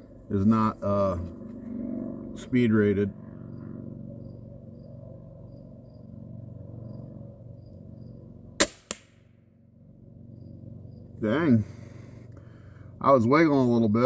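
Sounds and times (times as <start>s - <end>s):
crossbow string crack: 8.6s - 9.2s.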